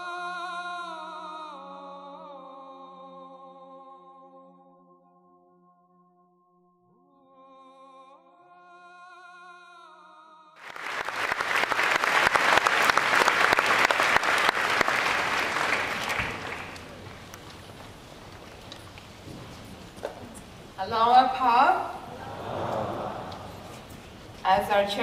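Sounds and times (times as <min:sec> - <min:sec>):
audience applause: 0:10.6 - 0:19.0, 0:22.1 - 0:24.3.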